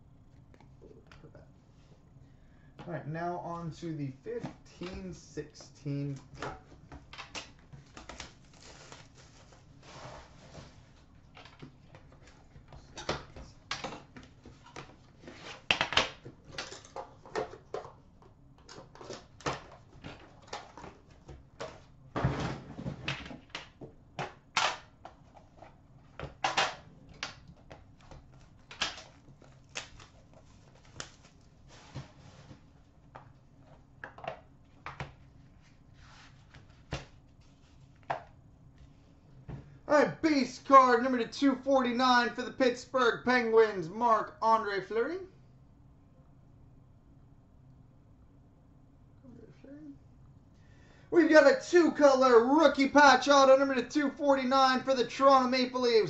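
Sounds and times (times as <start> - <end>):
plastic wrap crinkling: 7.8 - 9.8.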